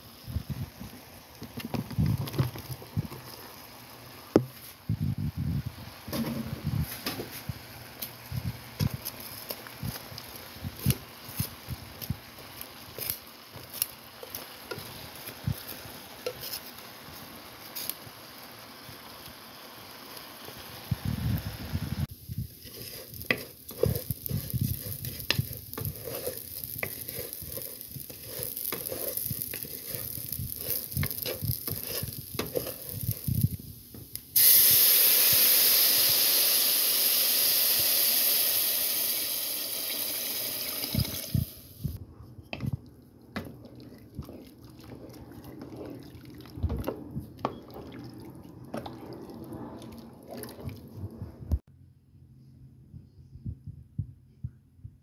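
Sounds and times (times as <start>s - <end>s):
rice swished in water: 22.6s - 33.3s, 43.4s - 51.0s
rice rattling into pot: 22.6s - 33.5s.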